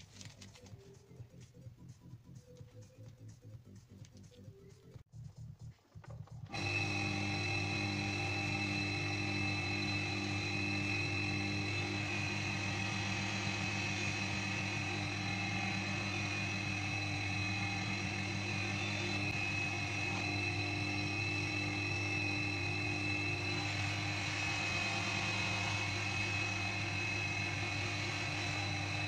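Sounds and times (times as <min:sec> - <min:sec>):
bench grinder whining: 0:06.4 - 0:29.0.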